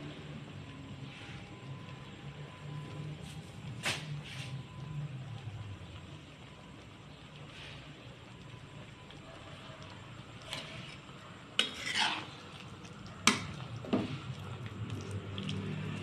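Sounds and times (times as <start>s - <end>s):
metal ladle stirring stew: 10.4s - 15.6s
ladle scraping pot side: 10.5s - 12.4s.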